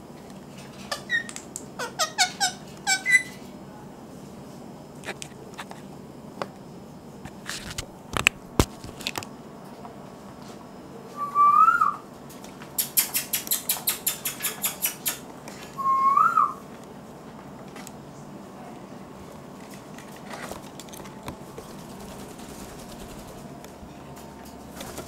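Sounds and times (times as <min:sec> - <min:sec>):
parrot rising whistles: 0:11.2 - 0:12.0, 0:15.8 - 0:16.6
parrot sharp clicks: 0:12.8 - 0:15.2.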